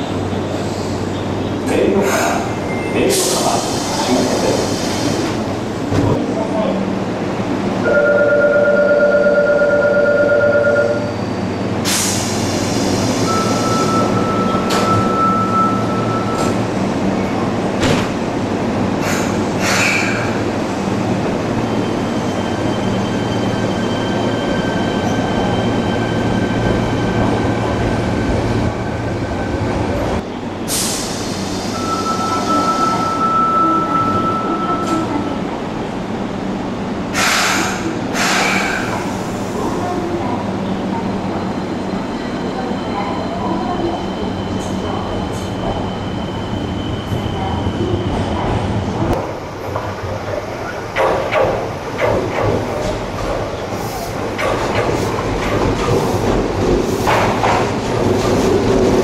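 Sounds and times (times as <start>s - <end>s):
electric train hum: 0.0s - 59.0s
high warning tone: 13.3s - 16.6s
air hiss: 37.2s - 39.6s.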